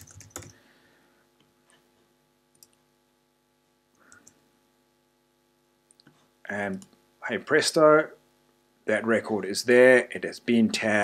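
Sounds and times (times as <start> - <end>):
computer mouse and keyboard clicks: 0.0 - 0.6
low steady hum: 0.0 - 11.0.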